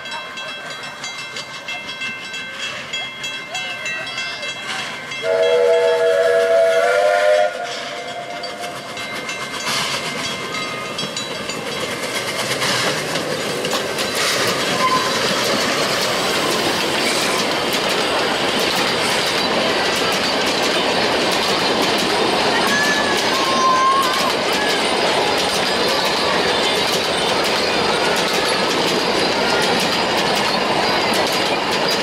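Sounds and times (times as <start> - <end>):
steam train passing: 0.0 - 32.0
train wheel clatter: 0.1 - 32.0
steam whistle chord: 5.2 - 8.4.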